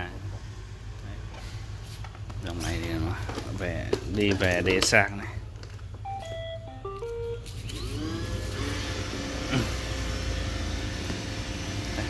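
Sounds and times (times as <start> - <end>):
electronic tune of stepped beeps: 6.0 - 7.9
robot vacuum motors whirring: 7.6 - 12.0.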